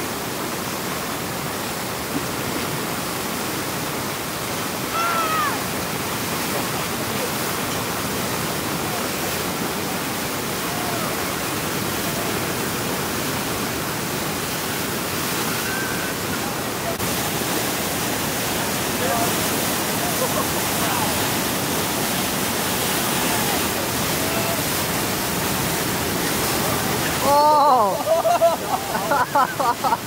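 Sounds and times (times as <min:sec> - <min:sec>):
churning whitewater rushing: 0:00.0 - 0:30.0
person shouting: 0:04.9 - 0:05.6, 0:10.6 - 0:11.2, 0:27.2 - 0:28.0.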